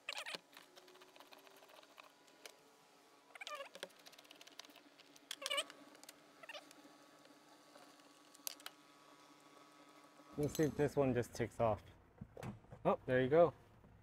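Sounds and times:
bolt squeaking: 5.2 - 6.8.

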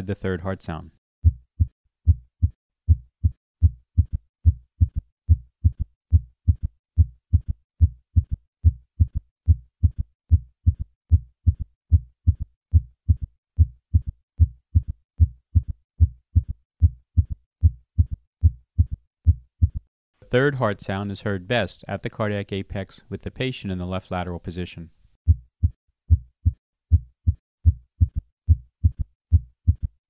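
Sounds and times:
heartbeat thuds: 1.2 - 19.9, 25.3 - 30.0.

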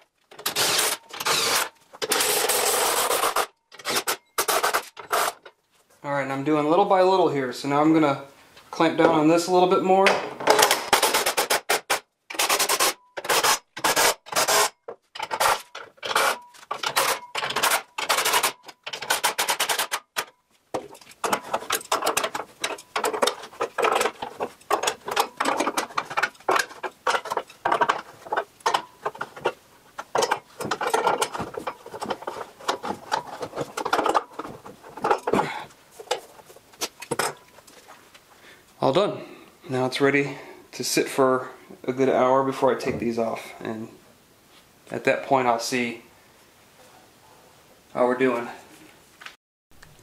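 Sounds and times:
hands working metal clamps: 0.0 - 5.6, 10.1 - 37.8
impact driver bursts: 0.4 - 5.4, 10.6 - 14.7.

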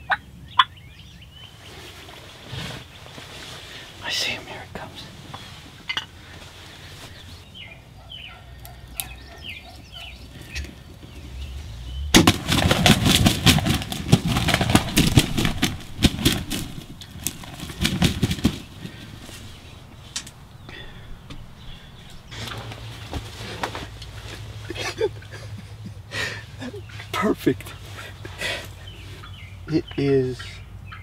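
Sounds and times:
faint high bird calls: 0.0 - 12.1
thrashing in ground cover: 12.1 - 19.5
turkey wings flapping: 12.1 - 21.1.

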